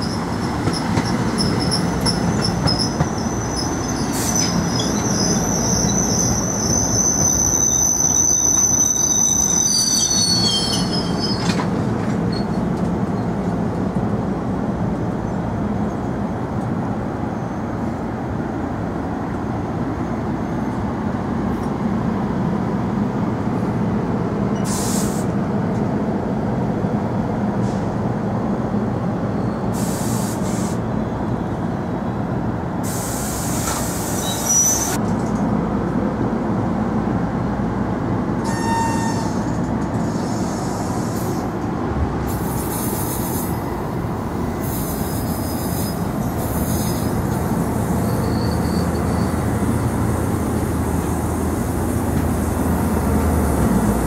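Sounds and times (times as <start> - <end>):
wheel squeals: 0.0 - 11.7, 33.7 - 35.0, 47.9 - 49.6
train wheels rumbling on rail: 0.0 - 54.0.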